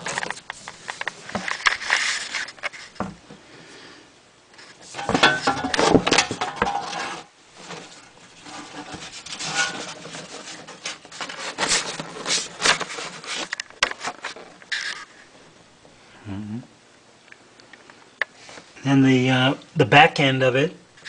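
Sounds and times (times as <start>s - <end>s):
plastic tubes rubbing and clicking: 4.6s - 15.1s.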